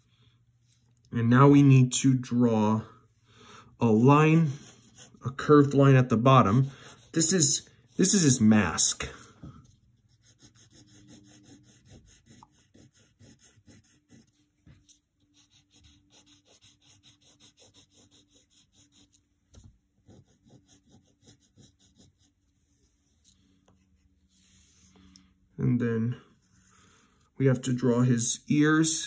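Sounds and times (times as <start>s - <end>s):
pencil scratching on paper: 3.8s - 9.1s, 10.1s - 19.2s, 20.0s - 22.4s.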